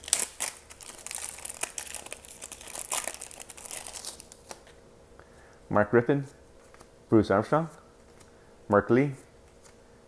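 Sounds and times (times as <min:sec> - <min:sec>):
wrapper crinkling and tearing: 0:00.0 - 0:04.7.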